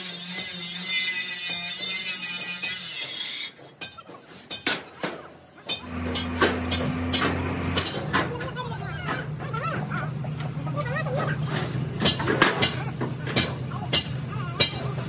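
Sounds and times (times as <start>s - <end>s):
angle grinder cutting steel: 0.0s - 3.9s, 5.7s - 8.2s.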